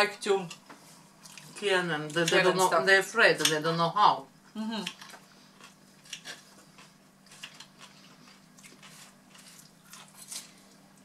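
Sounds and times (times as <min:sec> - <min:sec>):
steady low hum: 0:00.0 - 0:11.0
crunchy chewing: 0:04.8 - 0:11.0.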